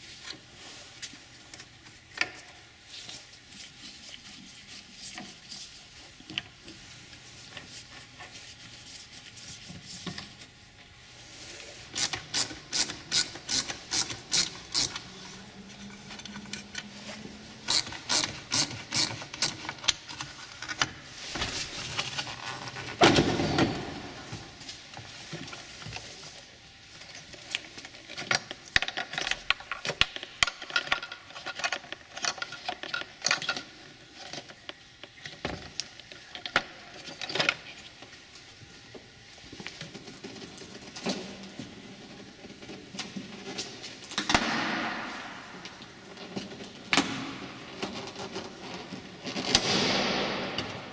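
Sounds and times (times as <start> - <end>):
ratchet tool clicking: 12.0 - 15.0, 17.7 - 19.6.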